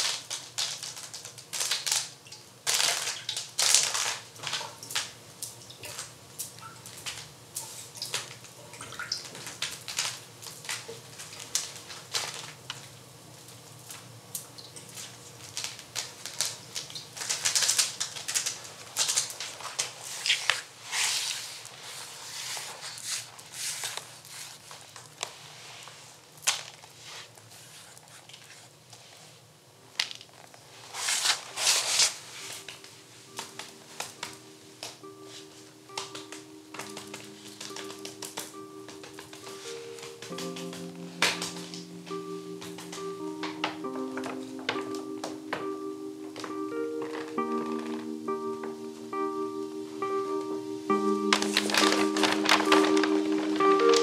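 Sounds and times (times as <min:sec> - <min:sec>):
paper and leaves crackling: 0:00.0 - 0:02.1, 0:02.7 - 0:04.6, 0:09.3 - 0:12.6, 0:14.9 - 0:28.8, 0:30.0 - 0:34.4, 0:35.3 - 0:45.6, 0:46.3 - 0:48.2, 0:50.9 - 0:54.0.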